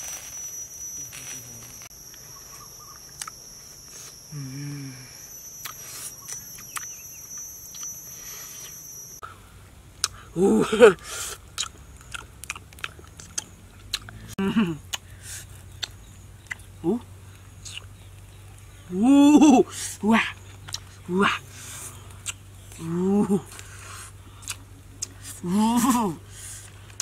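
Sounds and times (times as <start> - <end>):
high-pitched ringing: 0.0 - 11.2
boy eating noisily: 19.4 - 27.0.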